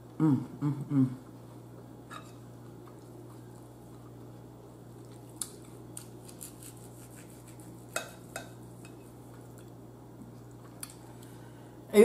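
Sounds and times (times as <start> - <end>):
low steady hum: 0.0 - 12.0
cutlery scraping a bowl: 2.1 - 2.4, 6.3 - 9.0.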